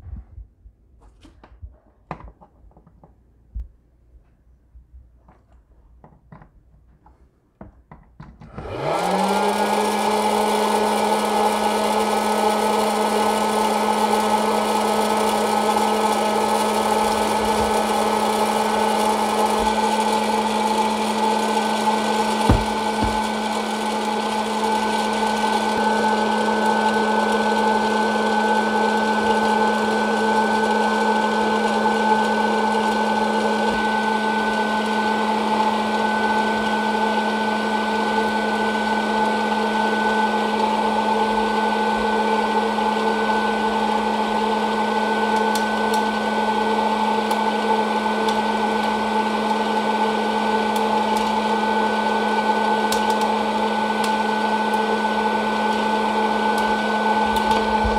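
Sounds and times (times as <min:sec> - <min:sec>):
popcorn popper fan hum: 0:08.5 - 0:57.9.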